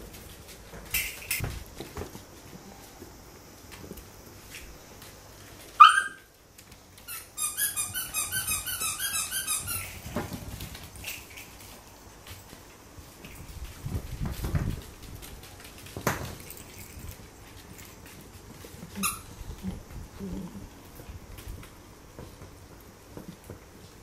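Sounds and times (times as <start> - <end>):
puppies yapping: 5.8 - 6.3
claws clicking on wooden floor: 6.5 - 19.1.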